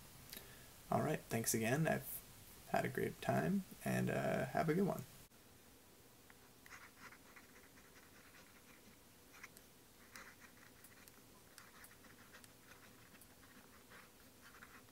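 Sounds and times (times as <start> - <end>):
pen nib scratching on paper: 6.6 - 14.9.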